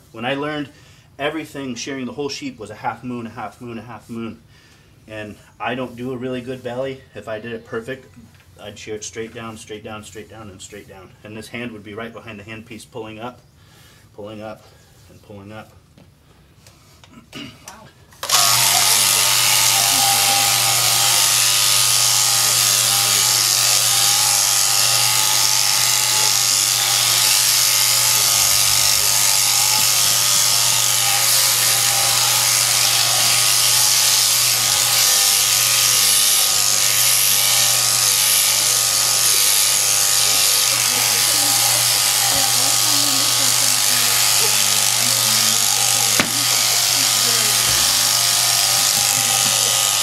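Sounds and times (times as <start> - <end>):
sheep shears humming: 18.2 - 50.0.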